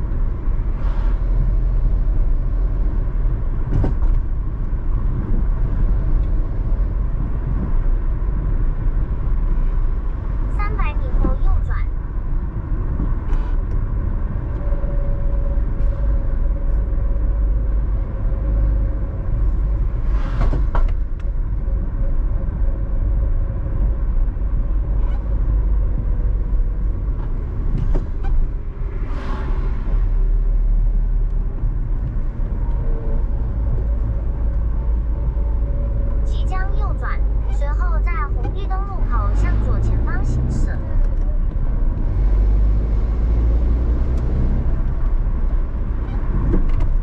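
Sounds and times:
car road noise rumble: 0:00.0 - 0:47.0
brief rushing swells: 0:29.0 - 0:30.0.

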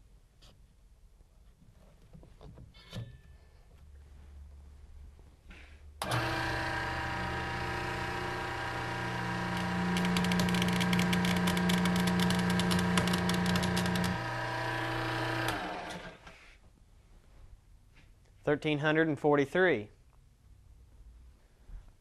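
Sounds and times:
motor and pump hum: 0:06.0 - 0:16.3.

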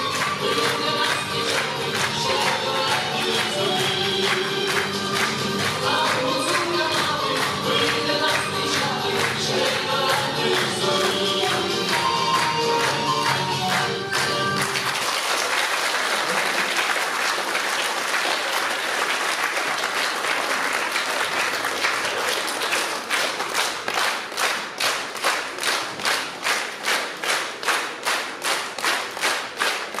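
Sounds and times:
dance music: 0:00.0 - 0:14.9
audience applauding: 0:00.0 - 0:30.0
rhythmic clapping in unison: 0:00.0 - 0:30.0.

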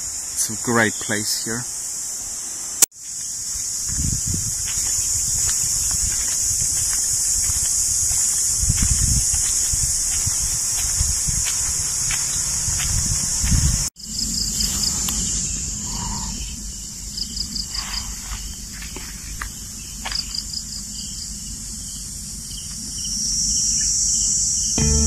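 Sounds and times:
cicadas buzzing: 0:00.0 - 0:25.0.

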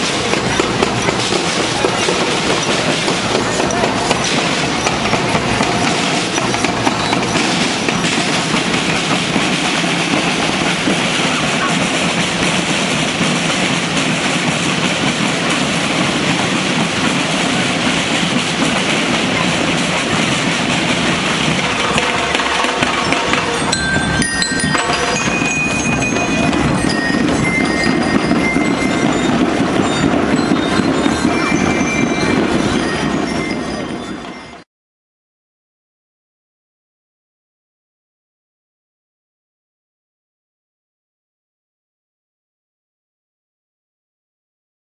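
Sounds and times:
marching snare and bass drums: 0:00.0 - 0:33.6
high ringing notes: 0:15.1 - 0:34.6.

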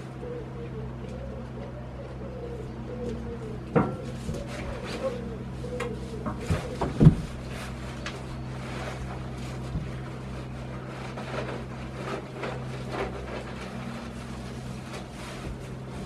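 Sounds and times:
steady low hum: 0:00.0 - 0:16.0
rustling on straw: 0:04.1 - 0:16.0.

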